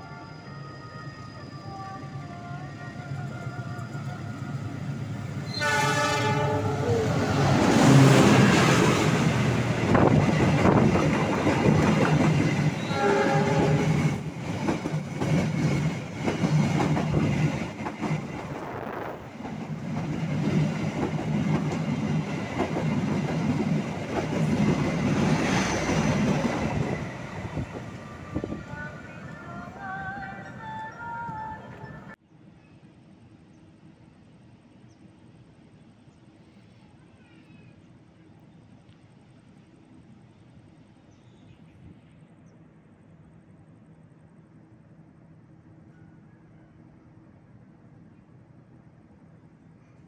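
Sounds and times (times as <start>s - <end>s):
locomotive horn blasts: 5.5s - 6.9s, 12.8s - 14.0s
train wheels clickety-clack: 9.8s - 12.8s, 13.6s - 18.7s, 19.3s - 27.0s.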